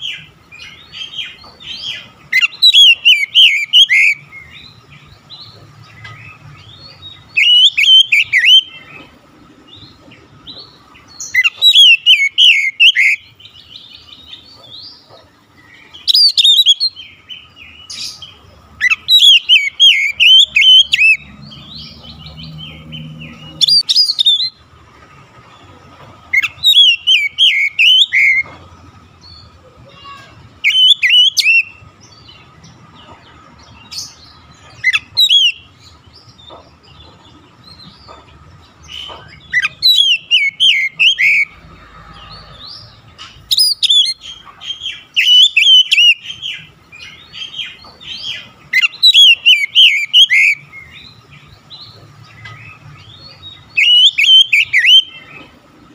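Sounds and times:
bird singing whistled phrases: 0:02.4 - 0:04.2, 0:07.4 - 0:08.7, 0:11.3 - 0:13.2, 0:16.0 - 0:17.0, 0:23.6 - 0:24.6, 0:26.4 - 0:28.4, 0:30.0 - 0:31.8, 0:39.6 - 0:41.5, 0:43.5 - 0:44.2, 0:45.2 - 0:46.2, 0:48.8 - 0:50.6, 0:53.7 - 0:55.2.

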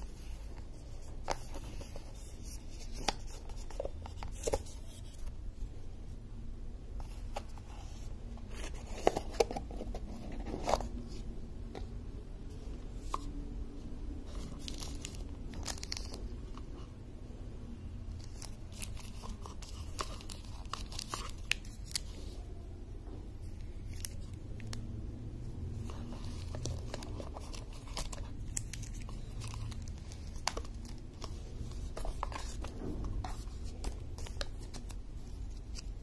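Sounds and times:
plastic packaging crinkling and tearing: 0:14.3 - 0:16.3, 0:18.2 - 0:22.4, 0:25.8 - 0:36.0.

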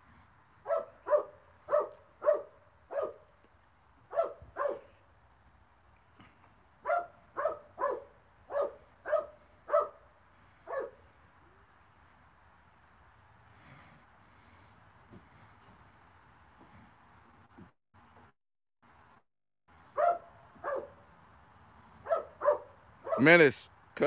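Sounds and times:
dog barking: 0:00.6 - 0:03.3, 0:04.1 - 0:05.0, 0:06.8 - 0:10.0, 0:10.6 - 0:11.0, 0:20.0 - 0:21.0, 0:22.0 - 0:23.4.

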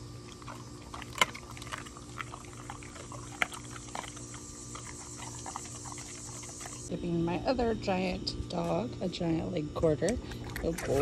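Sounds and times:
dog chewing wet meat: 0:00.0 - 0:06.9
faint low hum: 0:00.0 - 0:11.0
bone crunching: 0:00.3 - 0:06.9.

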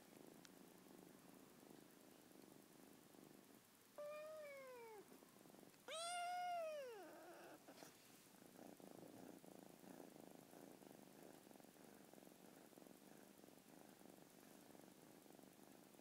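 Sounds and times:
soft purring: 0:00.0 - 0:16.0
kitten meowing: 0:04.0 - 0:05.0, 0:05.9 - 0:07.6.

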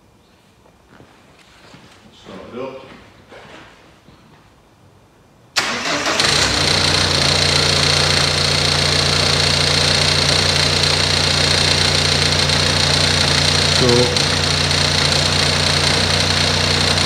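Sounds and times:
diesel engine cranking and idling: 0:05.6 - 0:17.0.

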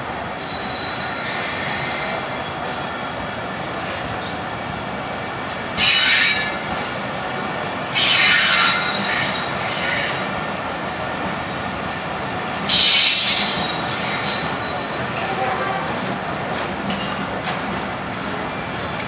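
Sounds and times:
train wheels rumbling on rail: 0:00.0 - 0:19.0
high-pitched wheel squeals: 0:00.4 - 0:02.2, 0:08.0 - 0:10.2, 0:12.7 - 0:15.0.

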